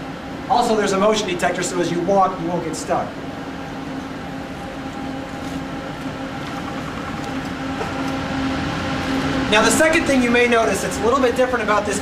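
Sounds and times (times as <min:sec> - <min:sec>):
server room machine drone: 0:00.0 - 0:12.0.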